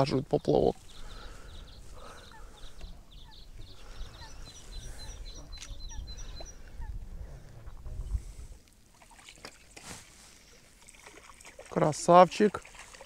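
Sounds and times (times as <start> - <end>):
short lower bird calls: 0.8 - 7.0
wind rumbling on microphone: 0.8 - 8.6
short high bird chirps: 0.9 - 6.9.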